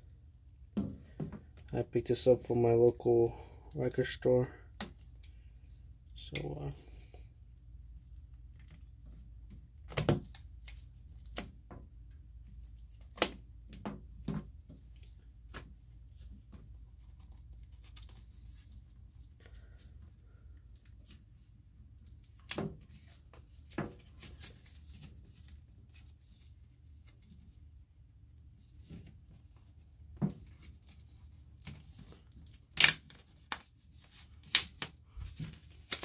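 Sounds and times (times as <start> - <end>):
shrink-wrap crinkling and tearing: 30.4 - 36.0.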